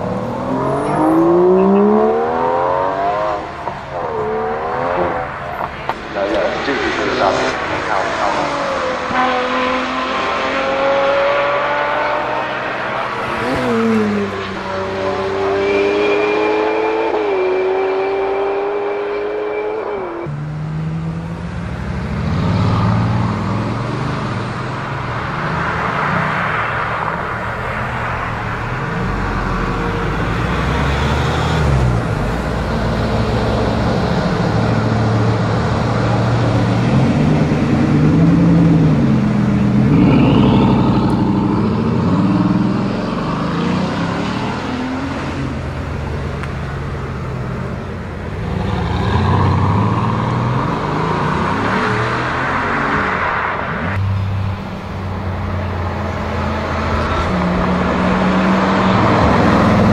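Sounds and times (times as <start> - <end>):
high revving car engine passing: 0.0 - 59.9
deep car engine rumble revving: 27.6 - 52.5.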